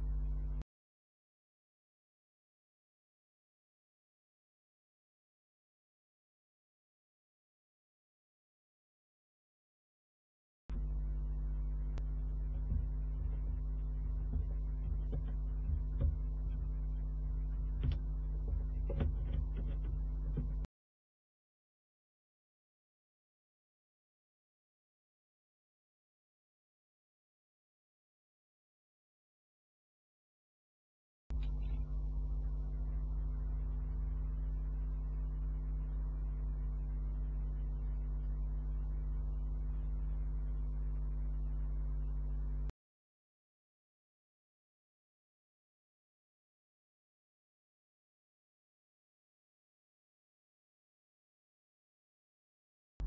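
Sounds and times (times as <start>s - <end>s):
electrical mains hum: 0.0s - 0.6s, 10.7s - 20.7s, 31.3s - 42.7s
faint clicks and taps: 12.0s - 20.7s.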